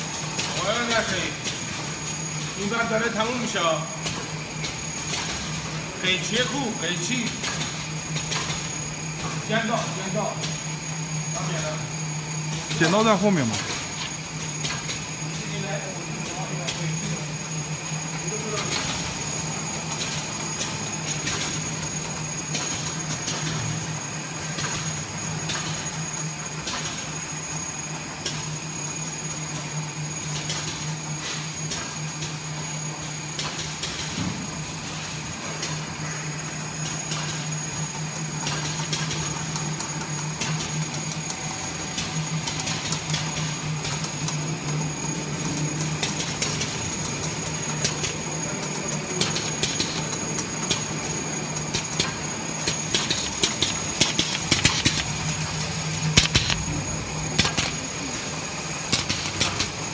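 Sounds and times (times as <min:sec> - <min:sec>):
machine motor hum with whine: 0:00.0 - 0:59.9
roller clicks and ticks: 0:45.4 - 0:50.9, 0:51.5 - 0:55.4, 0:57.4 - 0:57.8, 0:58.9 - 0:59.8.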